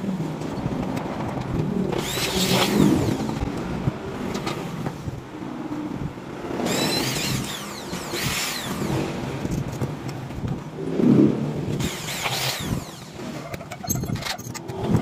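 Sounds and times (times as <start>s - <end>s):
electric drill whining into metal: 2.0s - 3.4s, 6.6s - 9.6s, 11.8s - 14.5s.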